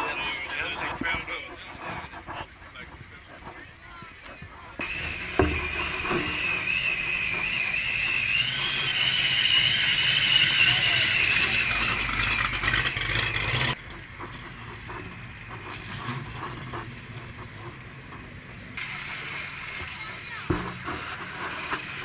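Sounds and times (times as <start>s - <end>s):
car engine running: 4.8s - 22.0s
high wavering whine: 4.8s - 22.0s.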